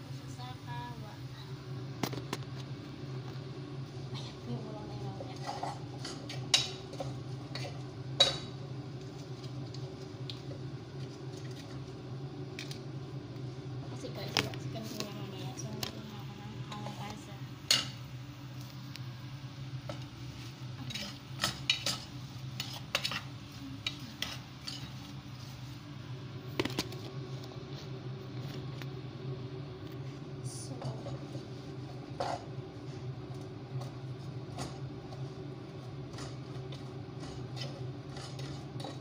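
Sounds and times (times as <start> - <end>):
steady low hum: 0.0 - 39.0
wooden spatula scraping pot: 20.8 - 22.0, 36.0 - 39.0.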